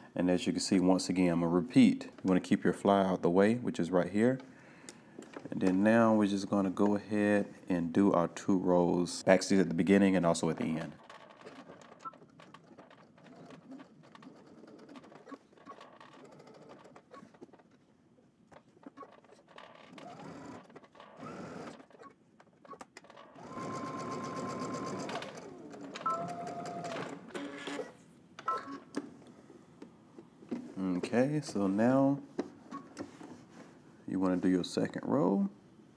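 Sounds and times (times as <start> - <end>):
sewing machine stitching: 11.0 - 17.6, 18.8 - 28.0.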